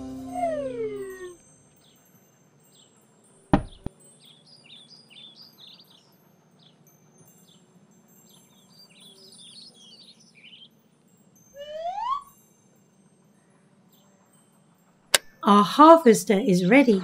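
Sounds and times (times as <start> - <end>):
cartoon falling swish and thump: 3.6 - 3.9
small birds chirping: 3.6 - 12.2.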